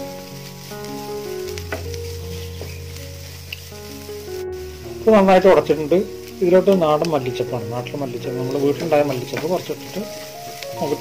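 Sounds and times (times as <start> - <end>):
filling sizzling in a pan: 0.0 - 11.0
soft background music: 0.0 - 11.0
wooden spatula scraping pan: 1.5 - 3.6, 8.4 - 11.0.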